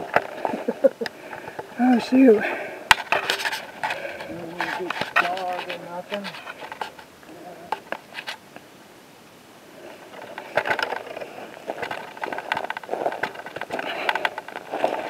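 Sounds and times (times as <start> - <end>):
branches scraping: 0.0 - 8.7, 9.6 - 15.0
twigs crackling: 0.0 - 8.8, 9.8 - 15.0
footsteps through dry brush: 1.4 - 7.1, 9.8 - 15.0.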